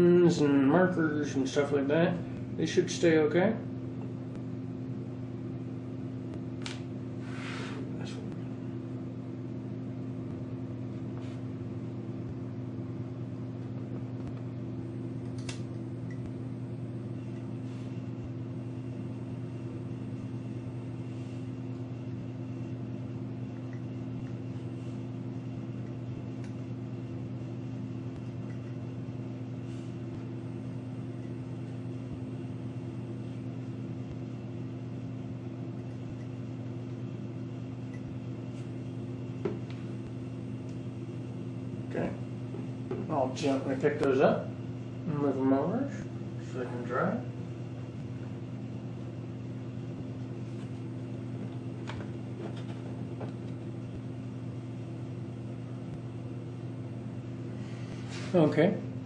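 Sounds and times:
low machine hum: 0:00.0 - 0:59.0.

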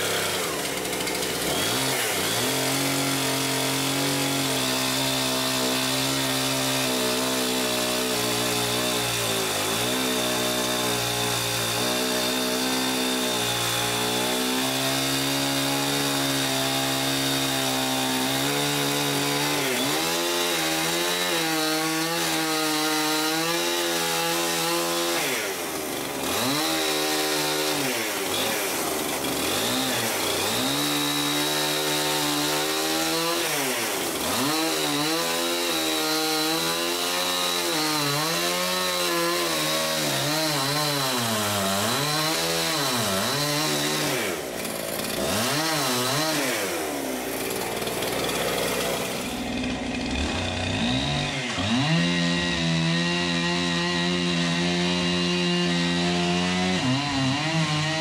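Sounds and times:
chainsaw cutting logs: 0:00.0 - 0:58.0.

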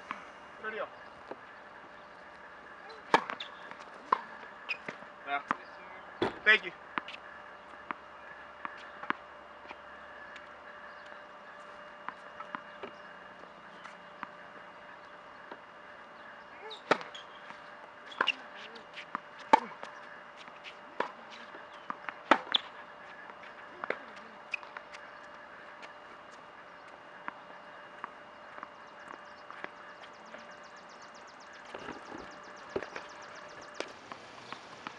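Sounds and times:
tennis ball bouncing: 0:02.8 - 0:11.2, 0:16.8 - 0:25.4, 0:31.5 - 0:34.9
racket hitting tennis ball: 0:02.9 - 0:05.0, 0:16.8 - 0:17.2, 0:21.0 - 0:22.7.

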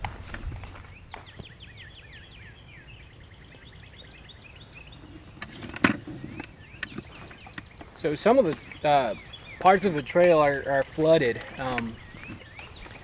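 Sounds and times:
footsteps: 0:00.0 - 0:01.5, 0:07.0 - 0:13.0
songbird trilling: 0:00.9 - 0:13.0.

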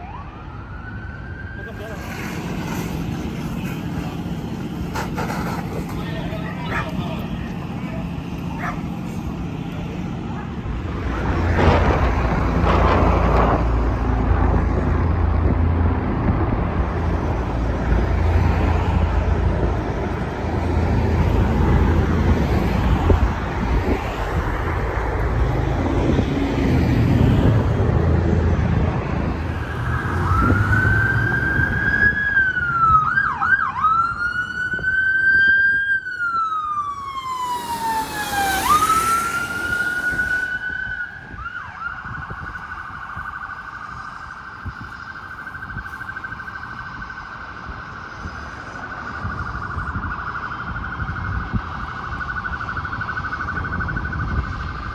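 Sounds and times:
police siren wailing and yelping: 0:00.0 - 0:02.2, 0:05.7 - 0:09.2, 0:29.2 - 0:54.9.

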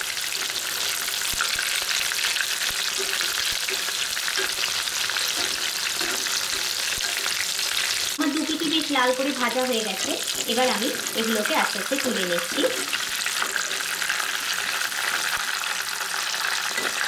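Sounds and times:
chicken sizzling in hot oil: 0:00.0 - 0:17.0.

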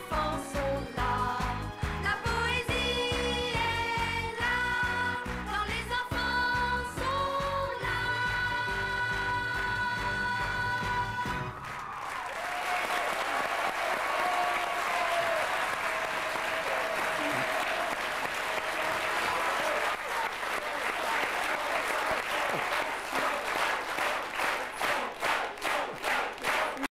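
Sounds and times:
rhythmic clapping: 0:00.0 - 0:26.9
audience applauding loudly: 0:10.5 - 0:26.9.

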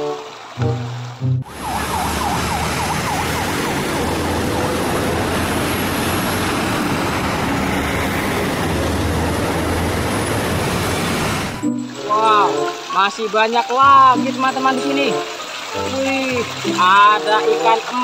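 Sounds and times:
heavy trucks rumbling past: 0:00.7 - 0:11.6
siren yelping: 0:01.4 - 0:05.3.

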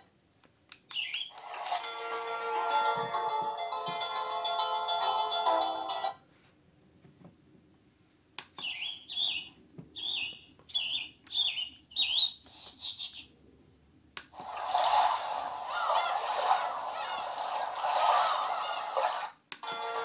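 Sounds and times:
alarm clock bird-song chirps: 0:00.9 - 0:01.4, 0:08.6 - 0:13.3.

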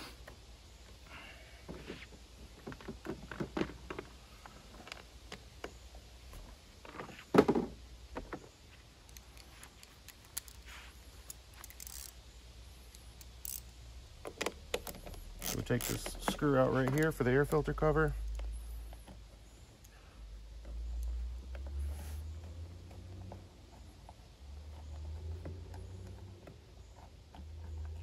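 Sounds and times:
hand tools clicking and clinking: 0:09.0 - 0:12.2.

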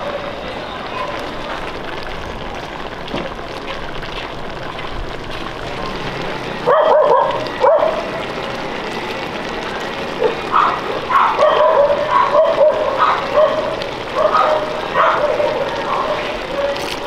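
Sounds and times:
dog barking: 0:06.6 - 0:08.1, 0:10.2 - 0:16.3.

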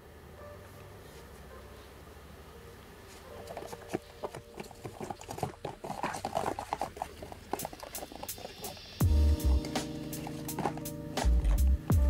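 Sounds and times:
capsules rummaged in box: 0:03.4 - 0:11.7
cardboard box flap opening: 0:09.6 - 0:11.6.

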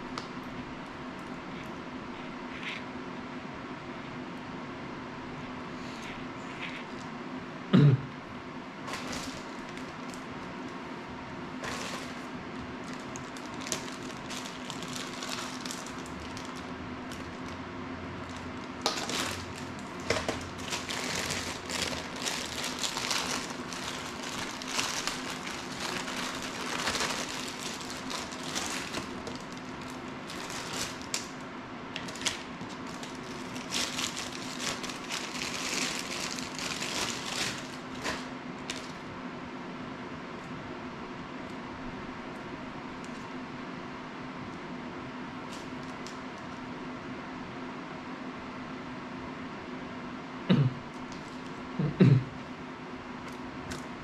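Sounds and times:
steady low hum: 0:00.0 - 0:54.0
plastic bag crinkling: 0:08.8 - 0:10.9, 0:11.6 - 0:39.1.

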